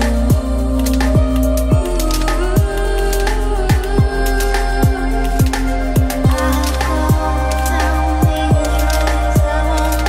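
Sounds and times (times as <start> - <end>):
deep kick drums: 7.1 - 7.4, 8.2 - 8.7.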